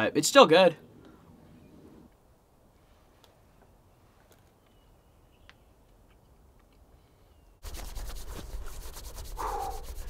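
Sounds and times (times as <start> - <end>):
faint bird chirps: 7.0 - 7.6
hands rubbing together: 7.6 - 10.0.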